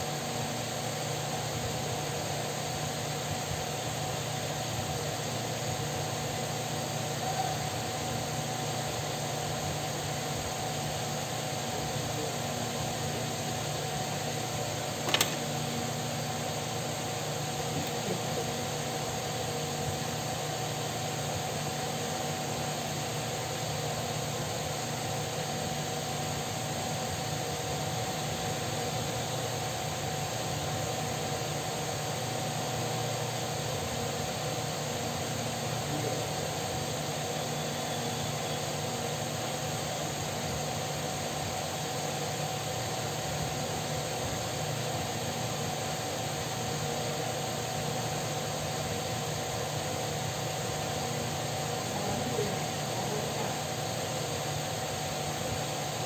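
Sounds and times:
electric fan humming: 0:00.0 - 0:56.0
sharp click: 0:15.0 - 0:15.5.

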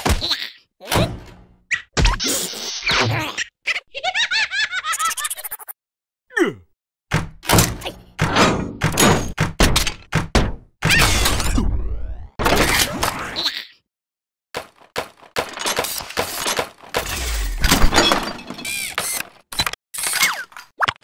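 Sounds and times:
clanks and thuds: 0:00.9 - 0:01.6, 0:07.1 - 0:11.6, 0:15.0 - 0:19.1.

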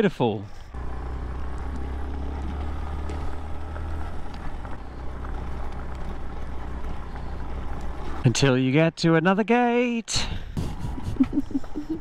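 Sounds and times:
motorcycle engine at low revs: 0:00.7 - 0:08.3.

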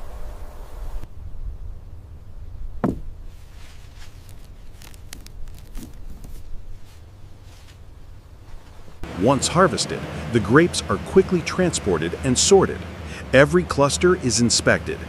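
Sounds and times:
dull knock: 0:02.8 - 0:03.1.

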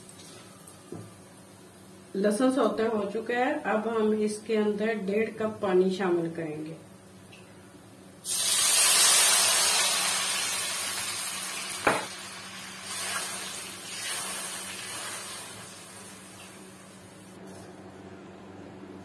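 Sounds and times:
water hissing in hot oil: 0:08.2 - 0:17.4.

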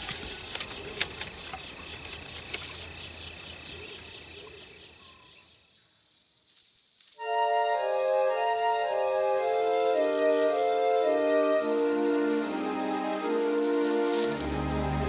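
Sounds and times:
faint low outdoor hum: 0:00.0 - 0:07.1
insects chirping: 0:00.0 - 0:15.0
high insect trill: 0:09.8 - 0:15.0.

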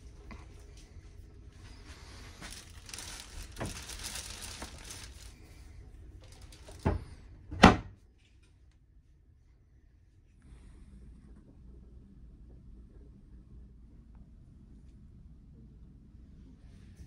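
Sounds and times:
rustling crinkling handling noise: 0:00.0 - 0:07.3
cupboard doors knocking shut: 0:06.8 - 0:07.9.

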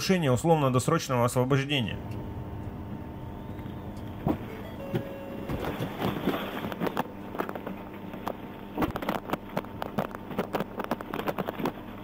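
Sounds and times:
faint steady hum: 0:00.0 - 0:12.0
clicks knocks and rustles: 0:05.5 - 0:11.9.

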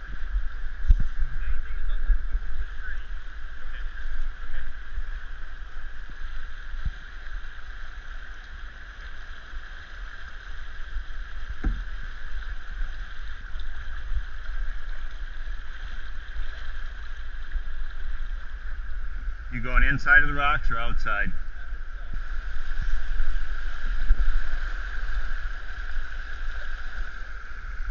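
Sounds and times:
wind rumbling on microphone: 0:00.0 - 0:27.9
dull knock: 0:11.6 - 0:11.9.

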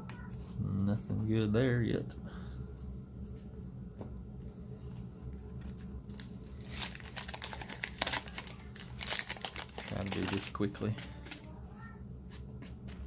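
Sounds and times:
low steady hum: 0:00.0 - 0:13.0
wrapper crinkling and tearing: 0:05.6 - 0:11.5.

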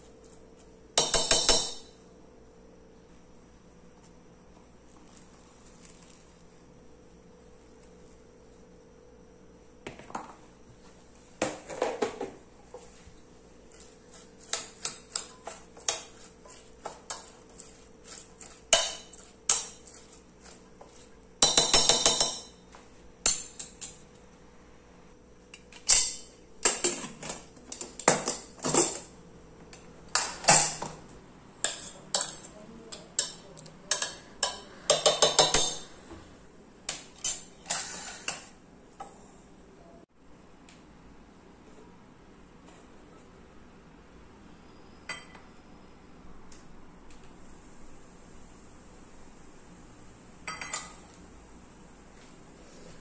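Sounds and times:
spoon scraping metal pot: 0:13.7 - 0:22.4, 0:31.6 - 0:32.6, 0:37.2 - 0:38.6
spoon clinking on metal pot: 0:50.5 - 0:51.0.

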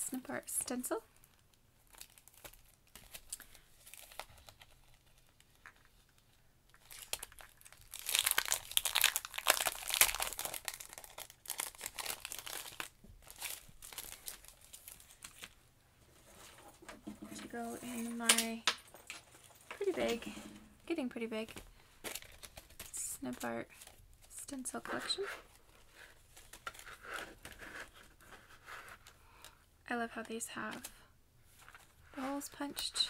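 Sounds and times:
plastic packaging crinkling: 0:01.2 - 0:15.6, 0:21.5 - 0:24.1, 0:24.8 - 0:29.5.

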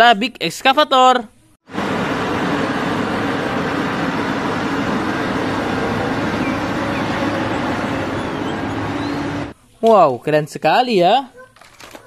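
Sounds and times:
excavator diesel engine droning: 0:01.7 - 0:09.5.

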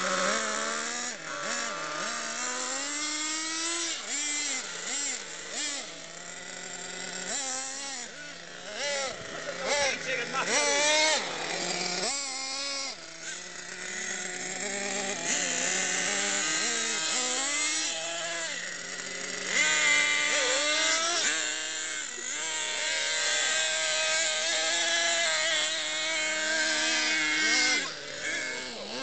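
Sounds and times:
rc car motors revving: 0:00.0 - 0:29.0.

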